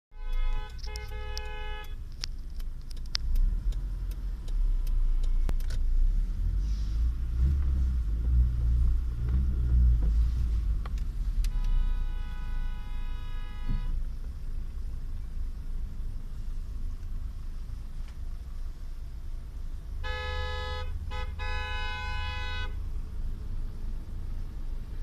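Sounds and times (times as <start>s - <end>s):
car rolling slowly rumble: 0.2s - 21.7s, 22.6s - 25.0s
sharp clicks: 0.3s - 5.8s.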